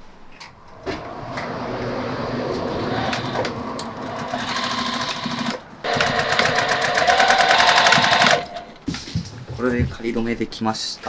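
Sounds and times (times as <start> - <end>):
sewing machine stitching: 2.7 - 8.8.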